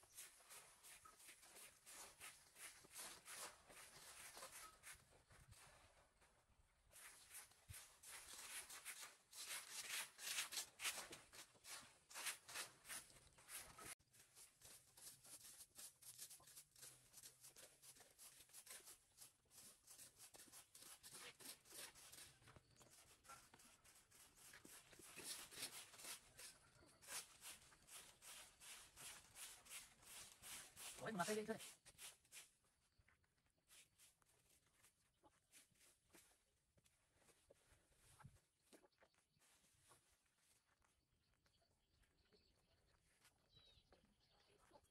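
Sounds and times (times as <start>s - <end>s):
rakes scraping leaves on concrete: 7.0s - 22.4s, 23.0s - 32.5s.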